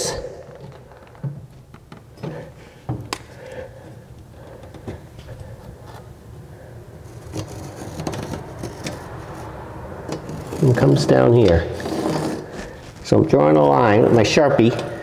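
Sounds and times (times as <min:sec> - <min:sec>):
marker scratching on rough surface: 0:11.7 - 0:12.8.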